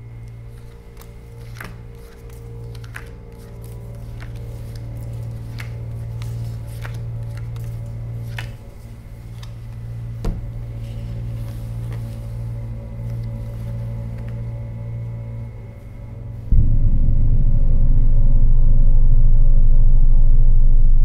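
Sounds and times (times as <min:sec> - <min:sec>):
low droning music: 0:00.0 - 0:21.0
playing cards snapping: 0:00.2 - 0:10.4
loud thump: 0:16.5 - 0:19.8.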